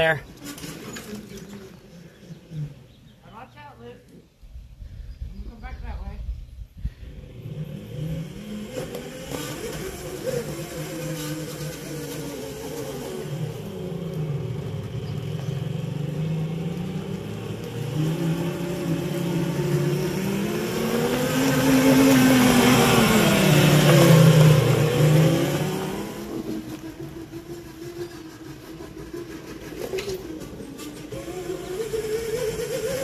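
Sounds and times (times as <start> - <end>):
electric motor humming: 7.1 - 33.0.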